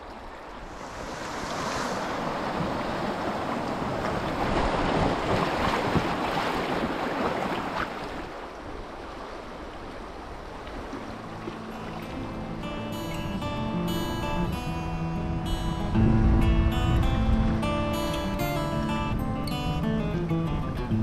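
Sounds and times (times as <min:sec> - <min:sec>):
rushing river water: 0:00.0 - 0:21.0
wind buffeting microphone: 0:00.6 - 0:07.3, 0:15.0 - 0:20.9.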